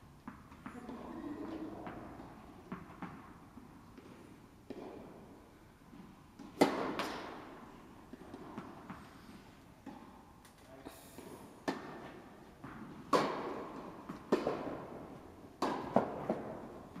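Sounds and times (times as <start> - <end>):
tennis ball hit by racket: 0.2 - 4.1, 5.9 - 9.1, 11.2 - 17.0
tennis ball bouncing: 0.2 - 5.2, 5.9 - 9.1, 11.2 - 17.0.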